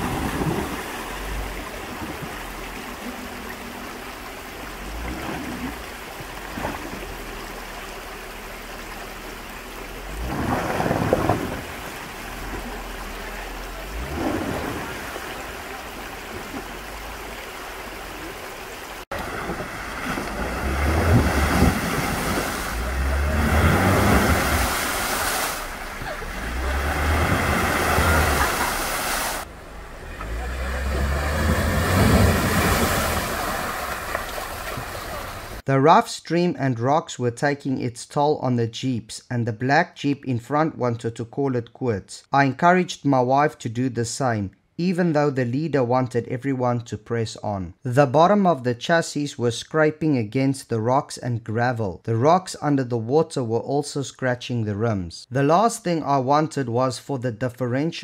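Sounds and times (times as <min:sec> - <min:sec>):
water sloshing around tyres: 0:00.0 - 0:35.6
car engine running: 0:01.0 - 0:35.6.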